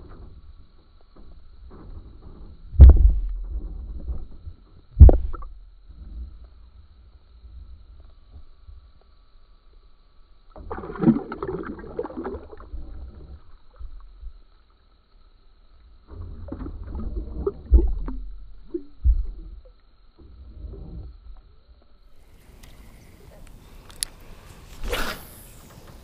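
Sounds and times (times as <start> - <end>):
water splashing and sloshing: 10.5 - 14.7, 16.0 - 22.8
fish splashing: 10.6 - 13.0.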